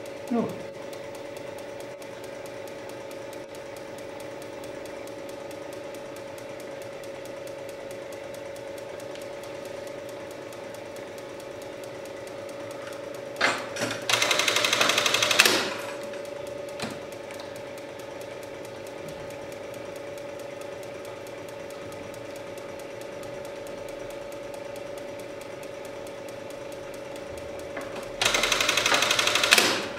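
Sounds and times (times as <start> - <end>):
sewing machine motor humming: 0.0 - 29.9
sewing machine click: 13.4 - 19.0, 26.9 - 29.9
rapid burst of stitches: 14.0 - 16.1, 28.2 - 29.9.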